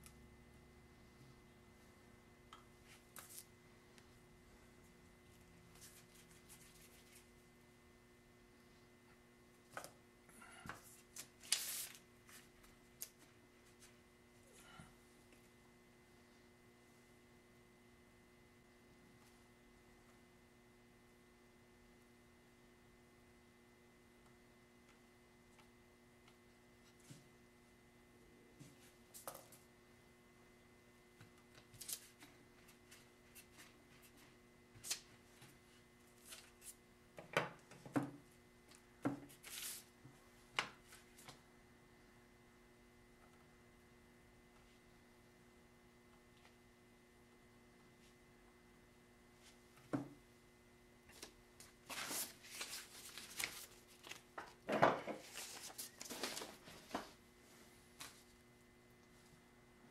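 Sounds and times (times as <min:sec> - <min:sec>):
paper rustling: 0:10.9 - 0:14.0, 0:51.1 - 0:54.5, 0:55.2 - 0:57.2.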